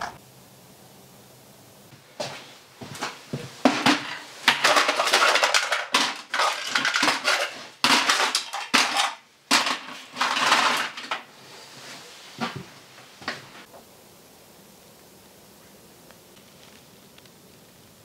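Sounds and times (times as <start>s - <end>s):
crushed cans clattering and scraping: 2.9s - 11.3s
cans dropped into a bucket: 3.7s - 11.3s.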